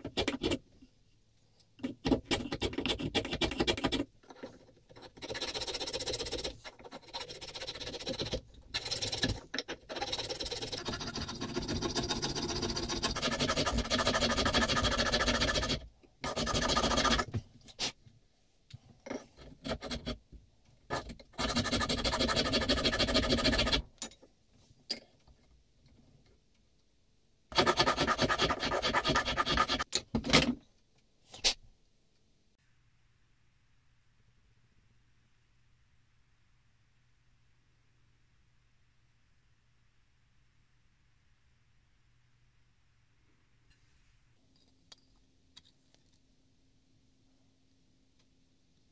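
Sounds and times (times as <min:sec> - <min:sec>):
file rasping wood: 0:05.0 - 0:17.3, 0:20.9 - 0:23.8, 0:27.5 - 0:29.8.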